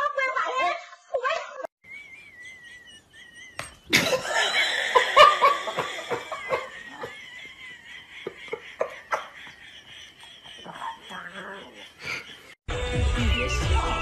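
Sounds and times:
person laughing: 2.2 - 12.6.

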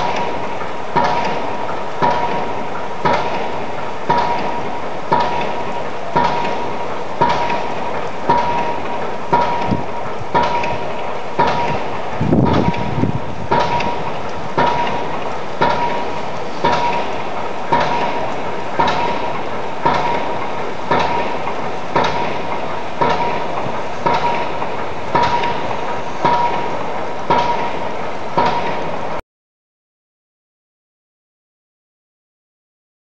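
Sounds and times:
noisy din: 0.0 - 29.2
mechanical strikes with ringing tone: 6.2 - 12.9, 21.9 - 28.8.

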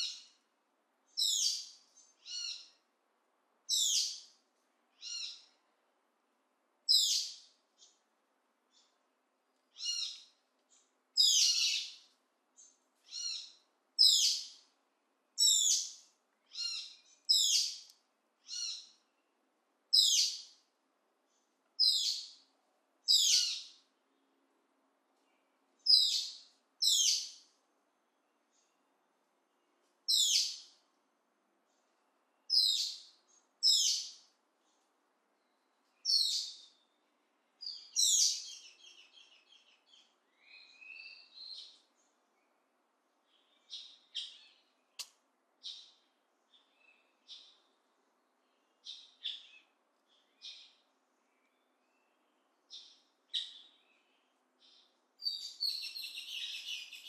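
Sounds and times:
bird calling: 55.2 - 57.0.

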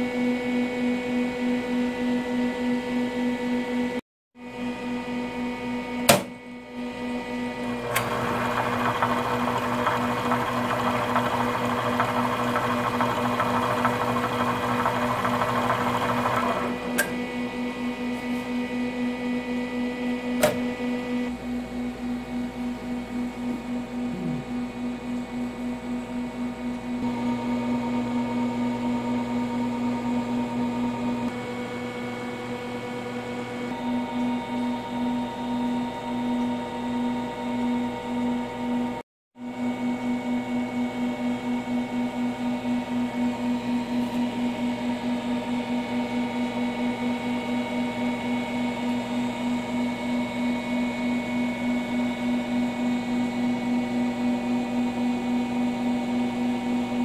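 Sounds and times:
machine hum: 5.1 - 36.4.

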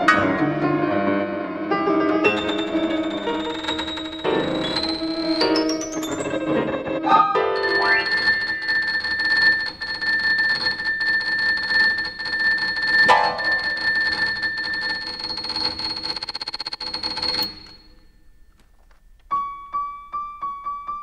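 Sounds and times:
high ringing electronic tones: 2.2 - 18.4.

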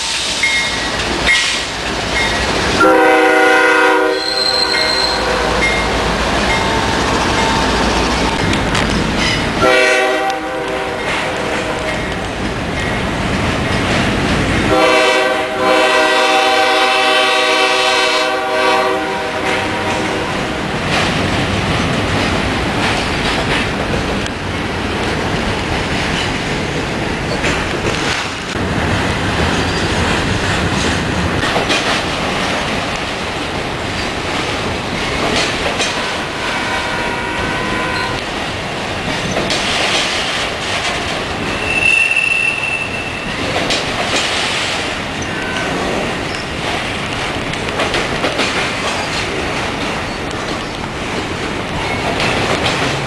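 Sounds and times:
diesel locomotive engines: 0.0 - 53.0
train wheels clattering on rails: 0.0 - 53.0
wheel squeals: 4.2 - 5.3, 41.5 - 43.5.

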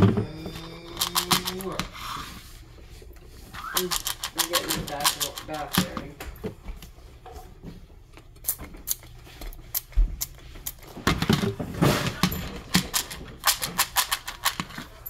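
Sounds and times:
popcorn rustling: 3.4 - 6.1.

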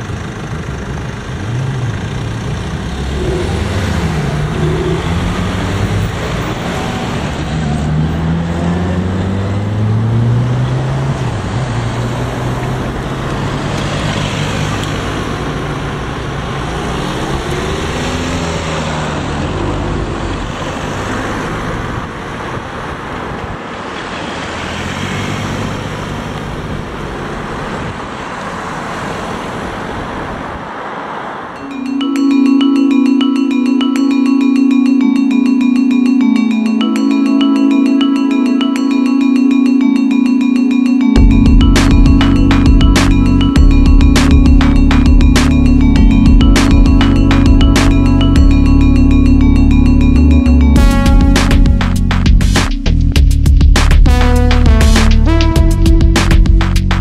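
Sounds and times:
cars driving past: 0.0 - 57.0
tyres hissing on road: 20.6 - 31.6.

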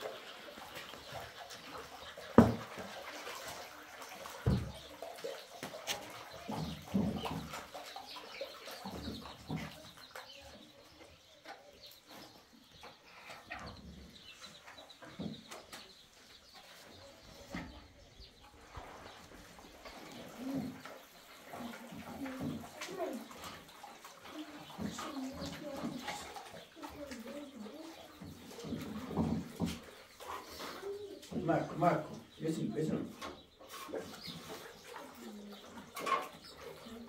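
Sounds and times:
hands stirring wet plaster: 0.0 - 10.4, 18.5 - 32.3, 33.1 - 37.0.

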